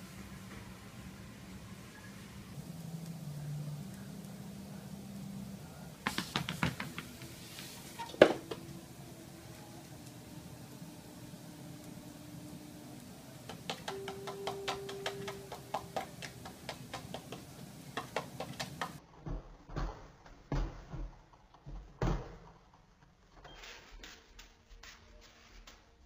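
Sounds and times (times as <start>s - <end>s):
steady hum: 0.0s - 19.0s
sharp clicks and taps: 6.0s - 7.3s, 13.4s - 19.0s.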